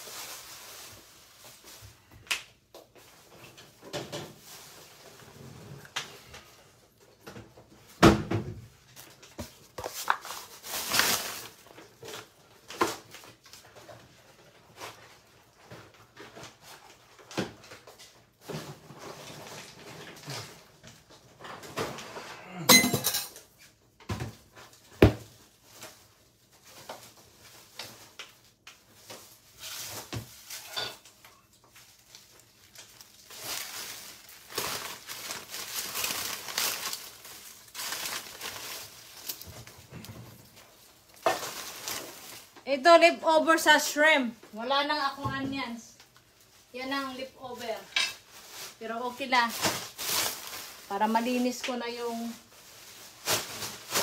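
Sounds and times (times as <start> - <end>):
dishes and utensils clattering: 22.7 - 23.5, 30.5 - 31.1.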